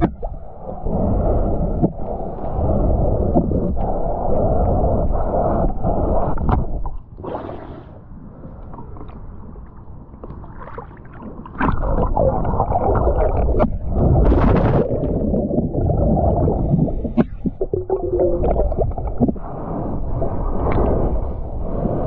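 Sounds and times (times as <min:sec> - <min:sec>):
underwater rumbling and gurgling: 0:00.0 - 0:22.0
underwater clicks and knocks: 0:13.6 - 0:19.4.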